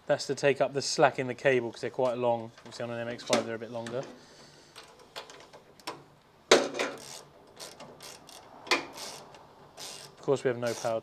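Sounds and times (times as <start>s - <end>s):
hand ratchet clicking: 6.9s - 11.0s.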